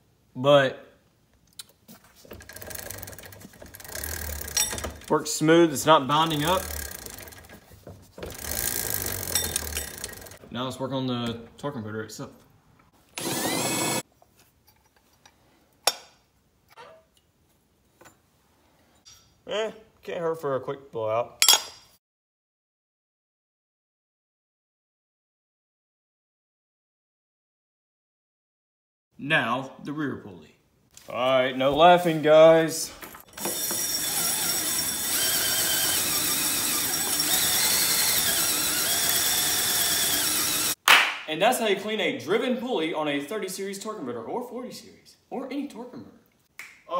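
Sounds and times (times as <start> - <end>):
tools clattering: 2.2 - 5.2, 6.1 - 10.4
whirring with high squeal: 33.3 - 40.8.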